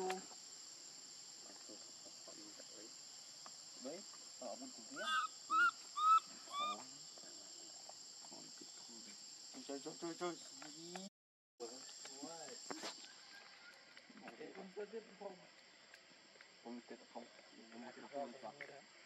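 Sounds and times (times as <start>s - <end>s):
insects droning: 0.0s - 19.0s
short rising-and-falling calls: 4.9s - 6.8s.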